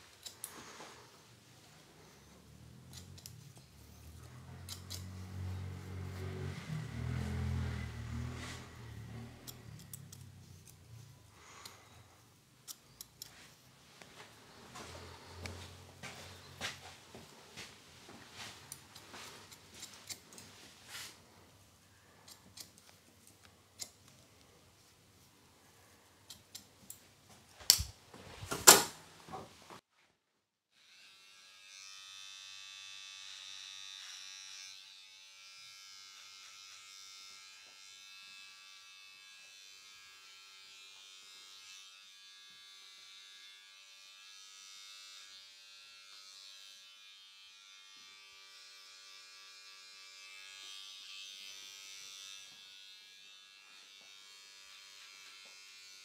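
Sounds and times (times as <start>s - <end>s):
electric hair trimmer buzzing: 4.1s - 10.8s, 30.8s - 56.0s.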